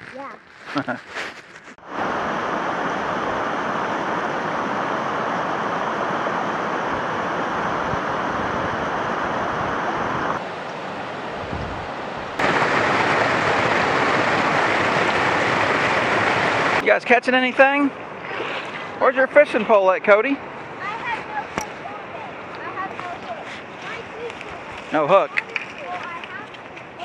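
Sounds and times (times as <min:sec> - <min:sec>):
river water cascading over rocks: 0:01.8 - 0:18.3.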